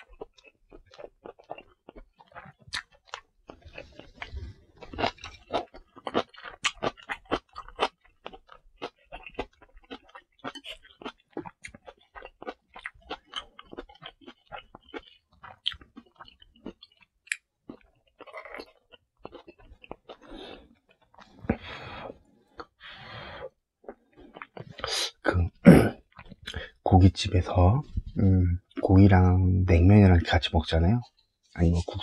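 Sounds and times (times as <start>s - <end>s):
chewing with wet mouth clicks: 0.0s - 21.6s, 23.8s - 24.9s, 26.0s - 26.8s.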